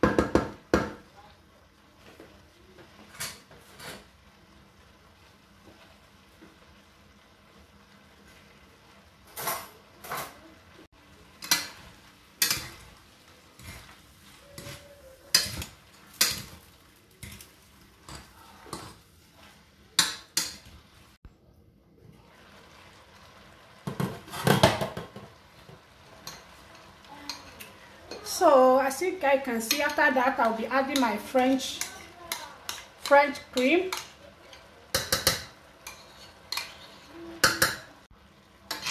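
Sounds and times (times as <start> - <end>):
utensil scraping metal pot: 3.2 - 4.1, 11.4 - 19.0, 29.6 - 37.9, 38.7 - 38.9.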